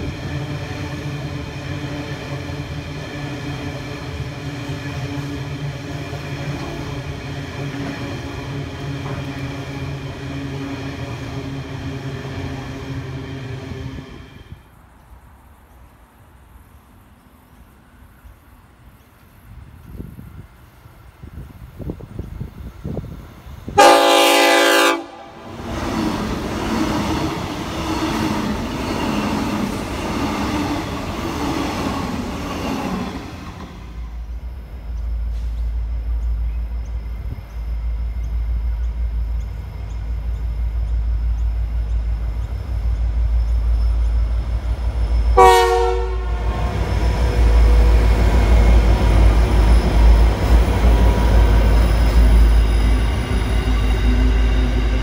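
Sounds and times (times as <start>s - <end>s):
electric train running past: 0.0s - 55.0s
train horn blast: 23.8s - 25.7s, 45.3s - 46.9s.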